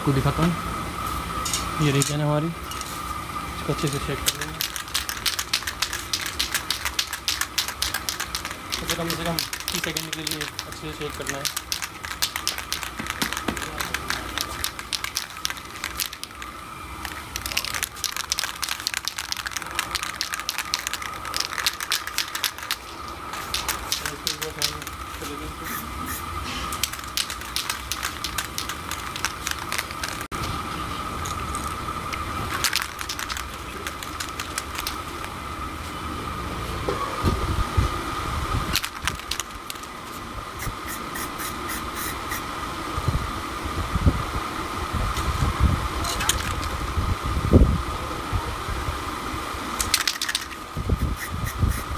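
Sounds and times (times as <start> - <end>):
spray can ball rattling: 3.7 - 30.3, 31.2 - 35.4, 38.7 - 40.0, 46.2 - 46.8, 49.8 - 51.9.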